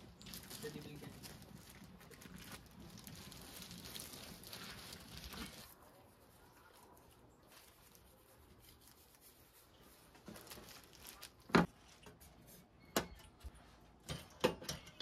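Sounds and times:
kitchen things clacking on steel: 14.0 - 15.0.

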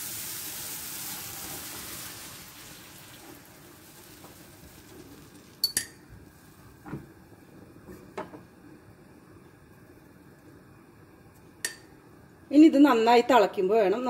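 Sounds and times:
water pouring: 0.0 - 5.7
sizzling in hot oil: 0.0 - 6.7.

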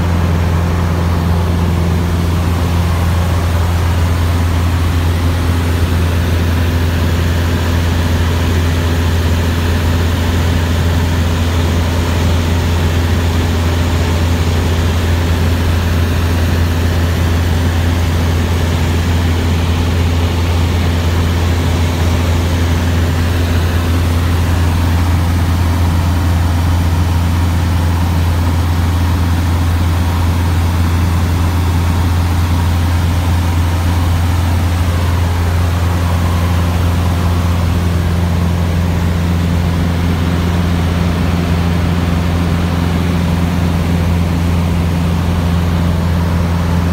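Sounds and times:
propeller plane engine droning: 0.0 - 46.9.

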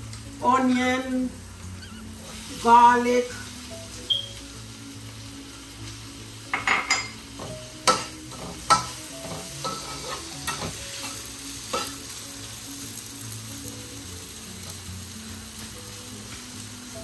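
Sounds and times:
food sizzling in a wok: 0.0 - 17.0
metal clanking on a pan: 6.5 - 12.1
metal spatula scraping a wok: 7.8 - 12.0.

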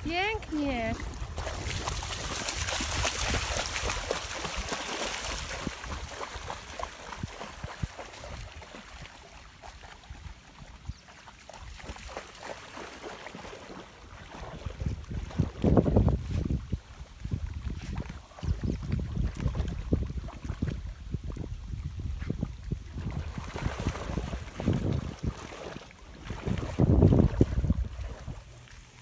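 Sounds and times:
dogs splashing in water: 0.0 - 29.0.

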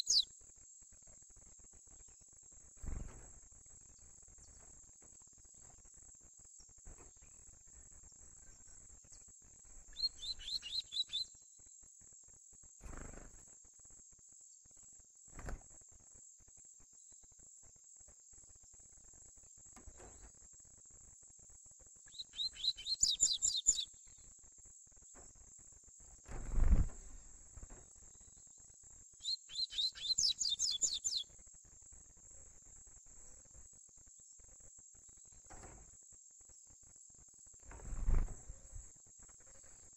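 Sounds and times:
bird singing rapid high notes: 0.0 - 0.2, 9.9 - 11.3, 22.1 - 23.9, 29.2 - 31.2.

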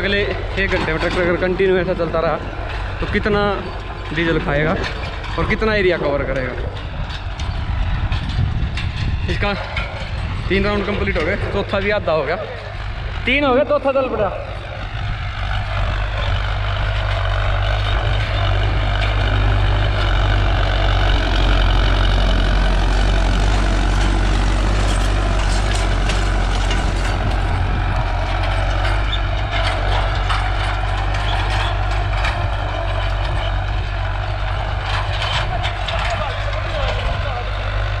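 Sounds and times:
disc harrow rattling and clanking: 0.0 - 38.0
tractor diesel engine under load: 0.0 - 38.0.

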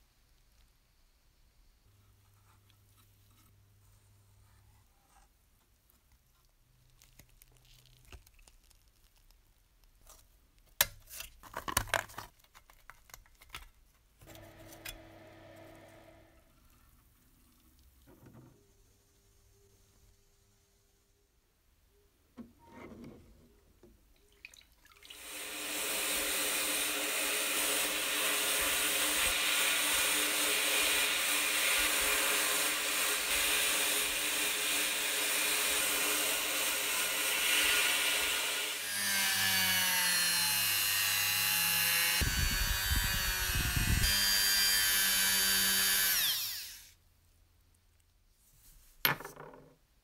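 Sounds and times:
rotary tool polishing: 25.2 - 46.9.

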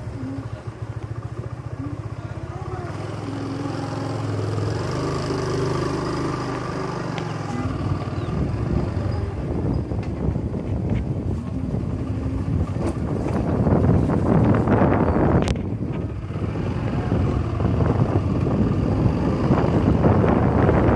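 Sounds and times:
motorcycle engine running: 0.0 - 20.9
rattles on bumpy track: 6.2 - 20.9.

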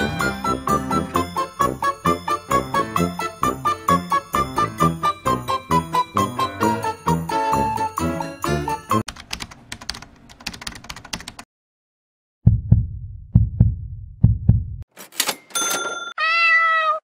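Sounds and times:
deep paired thumps: 12.4 - 14.8.

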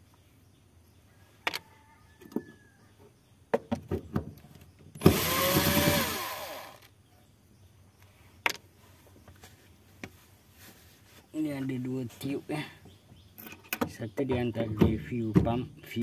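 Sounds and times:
cordless drill running: 5.0 - 6.8.

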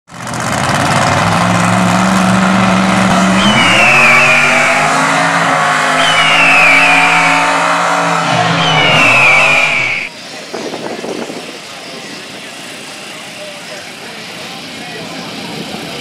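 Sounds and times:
truck engine revving: 0.2 - 10.1
high falling whine: 2.9 - 10.1.

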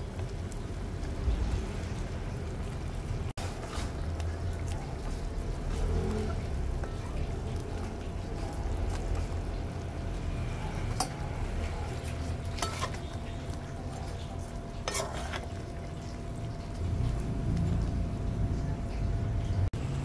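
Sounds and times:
meat frying in sauce: 0.0 - 20.0
low rumble: 16.4 - 20.0.

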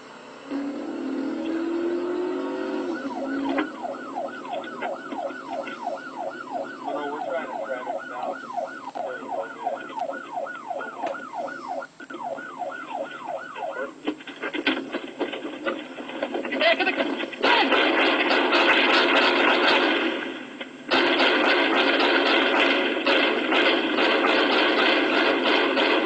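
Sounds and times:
police siren yelping: 0.2 - 26.0.

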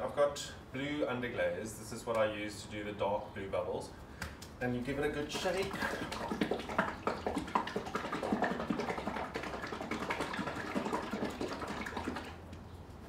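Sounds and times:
liquid sloshing in shaken bottle: 5.2 - 12.5.

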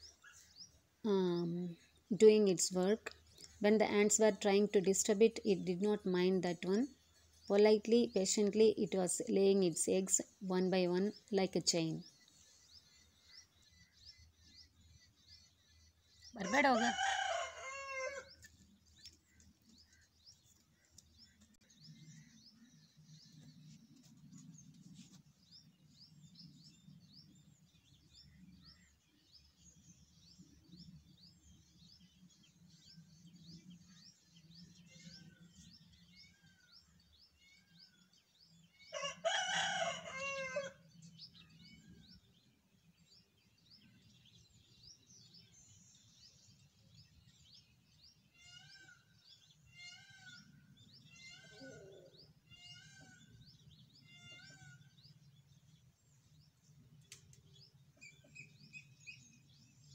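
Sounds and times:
small birds chirping: 0.0 - 59.9
rooster crowing: 16.4 - 18.4, 38.9 - 40.8.

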